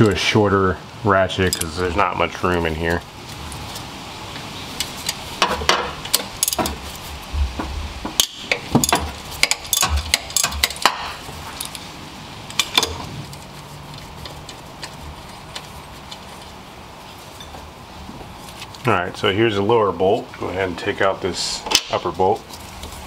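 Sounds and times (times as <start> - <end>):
wrench clinking against metal: 1.4 - 1.8, 8.2 - 11.0.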